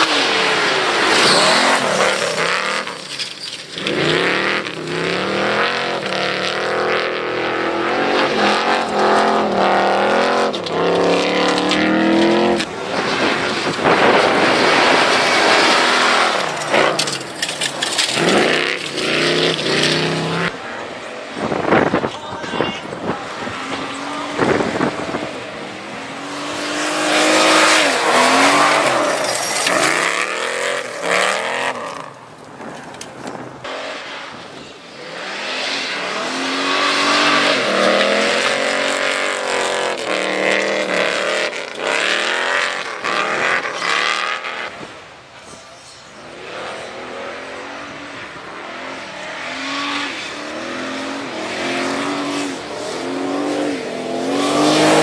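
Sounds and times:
tyres spraying loose dirt: 0:00.0 - 0:06.2, 0:10.5 - 0:20.5, 0:26.2 - 0:33.5
car engine revving: 0:00.0 - 0:22.1, 0:23.0 - 0:32.3, 0:33.4 - 0:45.1, 0:46.3 - 0:55.0.

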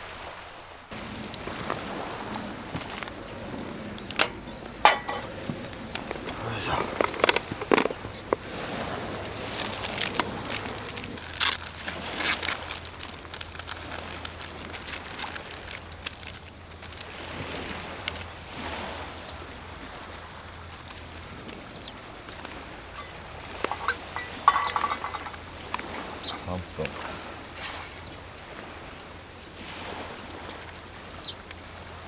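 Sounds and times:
packet crinkling and rustling: 0:00.9 - 0:03.1, 0:05.8 - 0:08.5, 0:09.2 - 0:18.3, 0:19.9 - 0:25.4
metal clinking on table: 0:04.2 - 0:05.3, 0:23.0 - 0:25.4.

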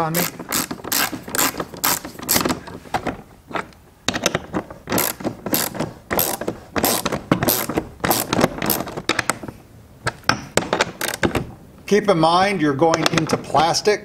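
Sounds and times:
hand ratchet clicking: 0:00.0 - 0:02.6, 0:04.2 - 0:09.0, 0:10.8 - 0:11.4.

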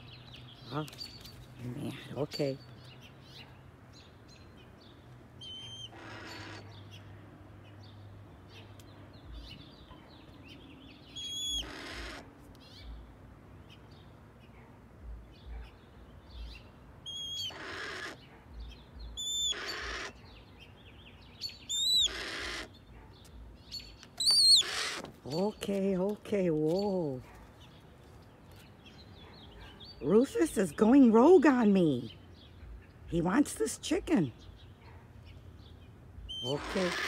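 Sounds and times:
hawk screeching: 0:05.5 - 0:06.7, 0:11.3 - 0:12.3, 0:17.1 - 0:18.2, 0:19.2 - 0:20.2, 0:21.7 - 0:22.8, 0:24.2 - 0:25.1, 0:36.3 - 0:37.0.

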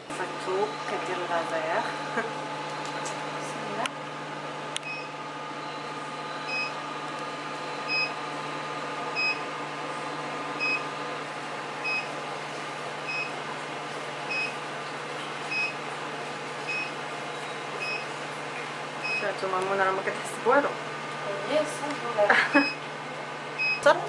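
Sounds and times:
steady machine hum: 0:00.0 - 0:24.0
machine short beeps: 0:04.8 - 0:06.8, 0:07.9 - 0:08.2, 0:09.2 - 0:09.4, 0:10.6 - 0:10.8, 0:11.8 - 0:12.1, 0:15.5 - 0:15.8, 0:16.7 - 0:17.0, 0:23.6 - 0:23.9.

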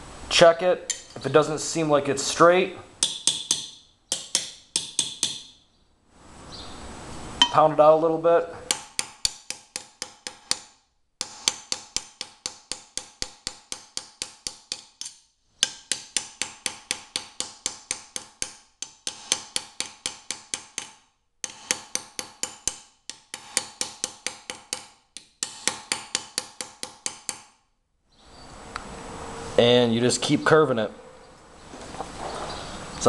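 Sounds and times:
hammer striking steel plate: 0:03.0 - 0:05.6, 0:07.4 - 0:07.8, 0:08.7 - 0:27.6.

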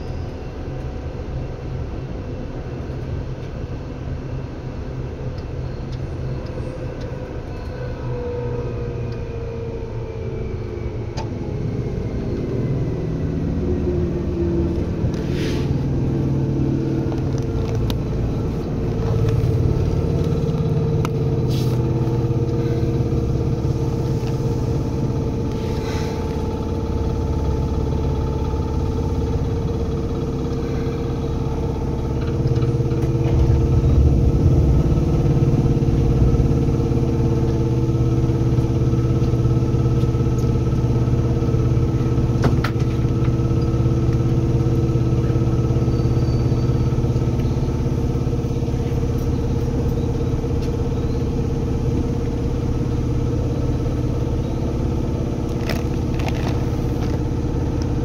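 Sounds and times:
train air compressor rumbling: 0:14.8 - 0:17.1, 0:17.9 - 0:52.0, 0:54.8 - 0:58.0.

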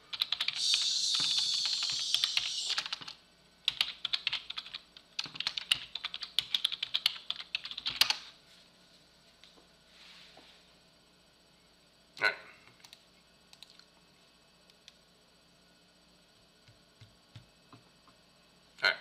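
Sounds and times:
typing on computer keyboard: 0:00.1 - 0:08.2, 0:12.7 - 0:13.9.

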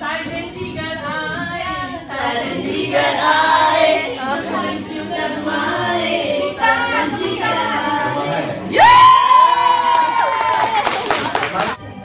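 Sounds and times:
people singing unaccompanied: 0:00.0 - 0:09.1.

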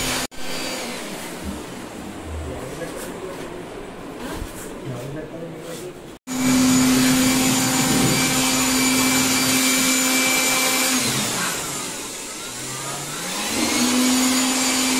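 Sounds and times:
power tool motor whirring: 0:06.3 - 0:14.9.

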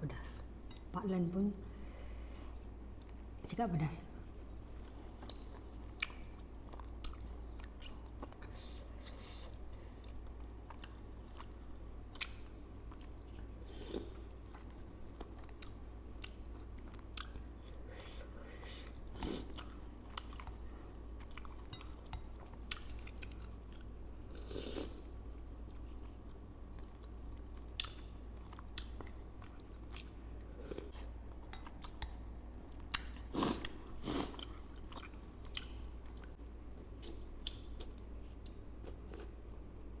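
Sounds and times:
steady low hum: 0:00.0 - 0:40.0
wet chewing with crunches: 0:25.7 - 0:30.1.

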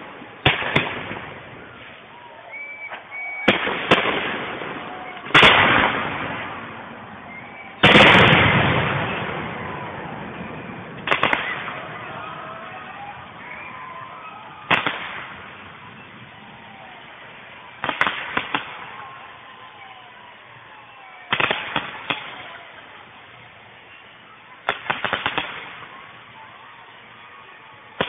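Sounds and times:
fireworks bangs and cracks: 0:00.0 - 0:02.2, 0:02.8 - 0:19.6, 0:21.2 - 0:23.9, 0:24.6 - 0:26.4.

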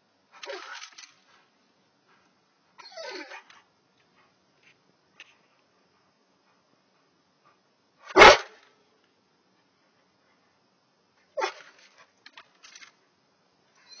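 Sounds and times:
dog barking: 0:08.1 - 0:08.6.

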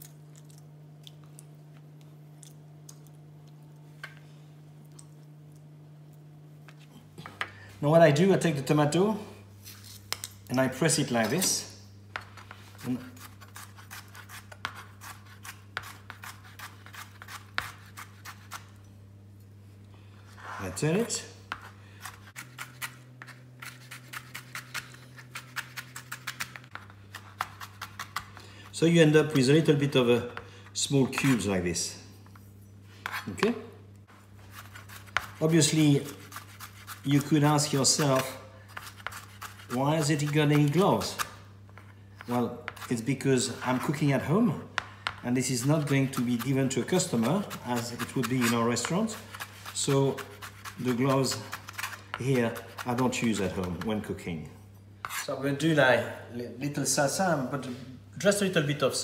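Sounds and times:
steady low hum: 0:00.0 - 0:59.0.

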